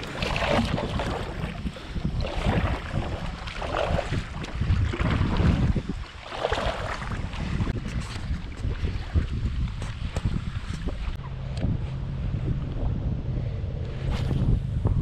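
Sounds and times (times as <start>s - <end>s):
paddle splashing in water: 0.0s - 11.2s
wind rumbling on microphone: 0.0s - 15.0s.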